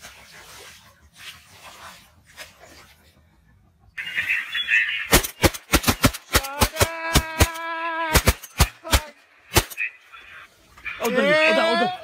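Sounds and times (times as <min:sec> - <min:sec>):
shotgun fire: 0:05.1 - 0:09.8.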